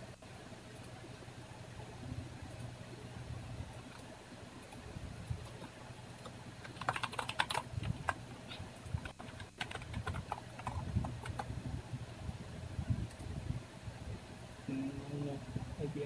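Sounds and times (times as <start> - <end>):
low steady hum: 0.0 - 16.0
computer keyboard typing: 5.4 - 11.6.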